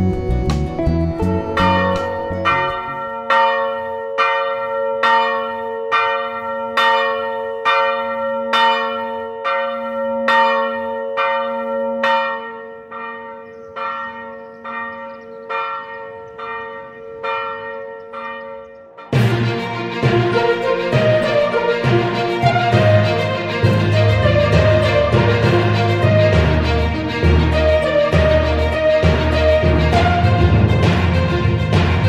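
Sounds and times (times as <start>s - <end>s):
music: 0.0s - 3.2s, 19.1s - 32.0s
church bell pealing: 0.0s - 32.0s.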